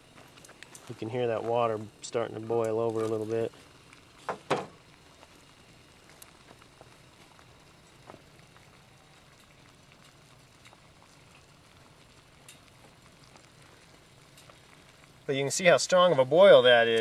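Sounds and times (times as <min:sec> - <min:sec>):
water boiling with small pops: 0:00.0 - 0:17.0.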